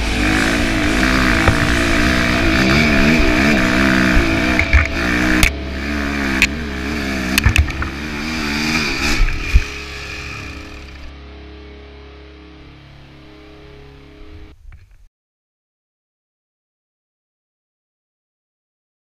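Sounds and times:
motorbike engine revving: 0.0s - 11.2s
bike knocking and clattering: 7.3s - 8.0s.

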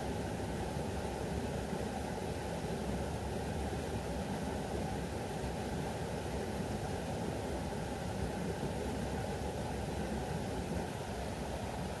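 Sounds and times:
rushing water: 0.0s - 12.0s.

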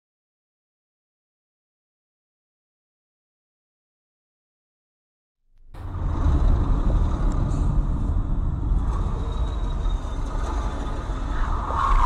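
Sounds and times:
road and engine rumble: 5.7s - 12.0s.

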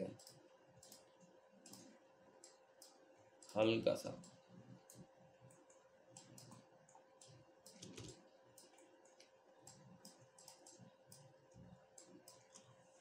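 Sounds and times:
computer mouse clicking: 0.0s - 12.8s
faint steady hum: 0.0s - 13.0s
keyboard clicking: 5.5s - 11.3s.

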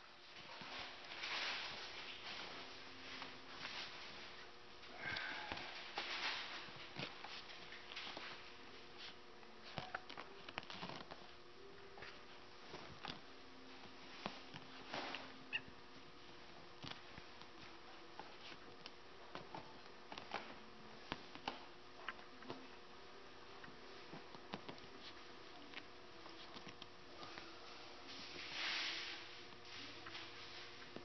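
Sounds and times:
faint steady hum: 0.0s - 31.0s
puppy paws scrabbling: 5.8s - 11.4s.

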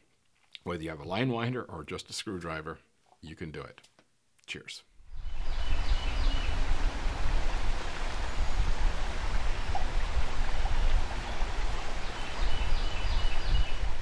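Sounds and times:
river water rushing: 5.1s - 14.0s.

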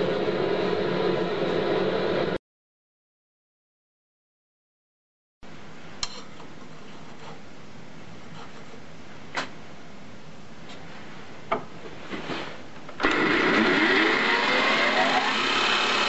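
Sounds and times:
grinder motor whine: 13.0s - 16.0s.

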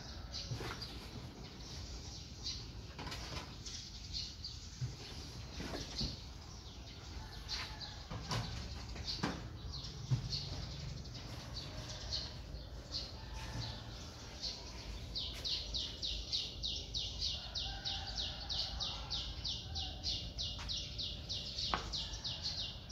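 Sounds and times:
small birds chirping: 0.0s - 22.8s.

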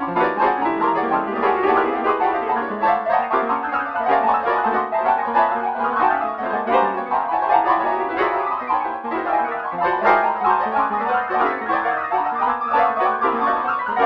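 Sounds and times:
midi piano rapid notes: 0.0s - 14.0s.

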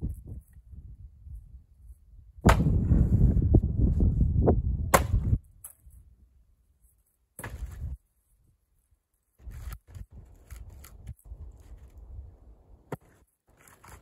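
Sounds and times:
axe striking log: 2.4s - 2.9s, 4.9s - 5.8s, 7.4s - 7.8s.

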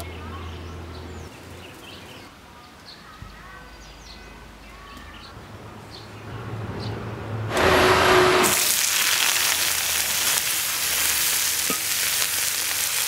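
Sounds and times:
small birds chirping: 0.0s - 7.2s.

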